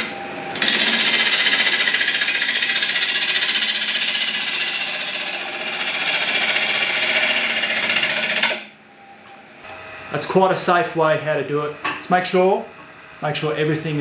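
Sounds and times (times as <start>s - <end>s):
lathe gouge chattering on wood: 0.6s - 8.6s.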